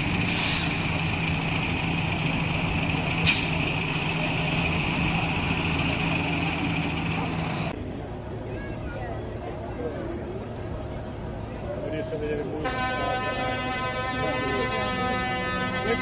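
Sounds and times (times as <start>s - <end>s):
tractor engine running: 0.0s - 7.8s
short hisses: 0.3s - 0.9s, 3.2s - 3.6s.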